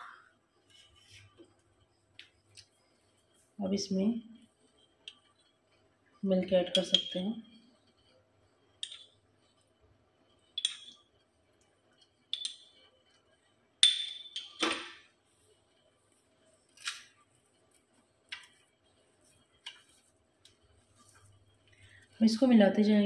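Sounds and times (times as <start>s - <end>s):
steel spoon clinking: 6.6s - 7.2s, 10.6s - 11.0s, 12.3s - 12.8s, 13.8s - 14.6s.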